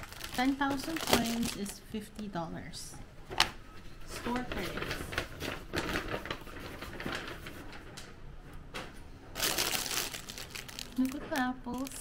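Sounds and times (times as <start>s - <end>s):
plastic packaging crinkling: 0.0s - 1.9s, 4.2s - 7.8s, 9.3s - 12.0s.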